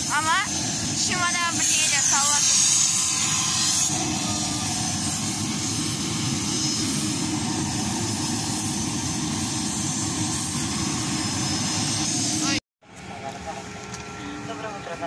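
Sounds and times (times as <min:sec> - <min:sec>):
aircraft engine low rumble: 0:00.0 - 0:15.0
faint high engine whine: 0:00.0 - 0:15.0.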